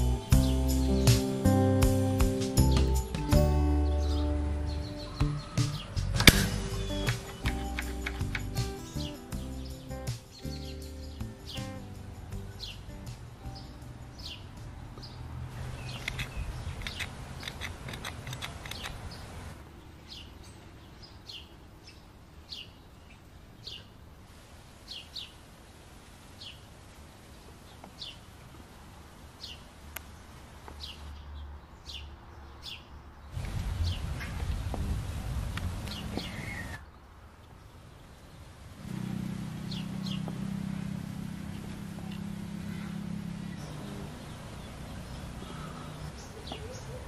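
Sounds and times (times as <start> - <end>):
small bird chirping: 0.0 - 19.4, 39.6 - 47.0.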